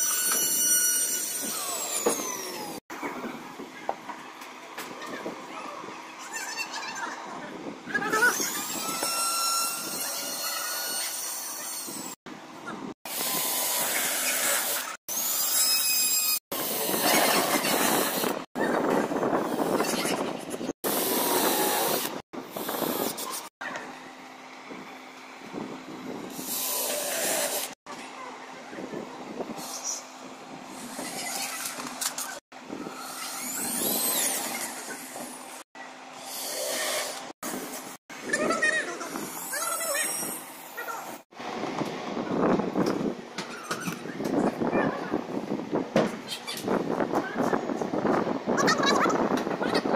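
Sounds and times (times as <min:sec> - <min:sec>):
cordless drill boring into wood: 0:00.0 - 0:02.8, 0:08.2 - 0:12.2, 0:20.9 - 0:23.3, 0:26.3 - 0:27.8, 0:32.9 - 0:35.4, 0:36.2 - 0:37.3
cordless drill into wood: 0:20.9 - 0:23.3, 0:32.9 - 0:35.3.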